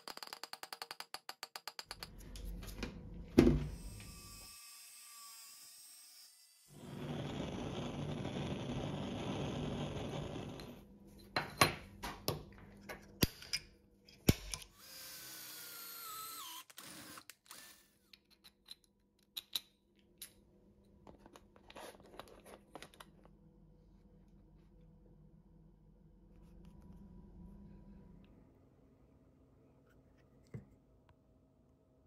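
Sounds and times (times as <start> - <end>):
steady workshop noise: 2.0 - 18.4
electric drill boring into steel: 3.7 - 7.6, 14.7 - 17.9.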